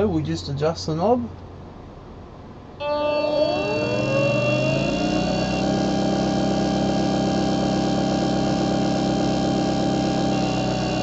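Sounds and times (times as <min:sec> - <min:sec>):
electric gear motor humming: 0:02.8 - 0:11.0.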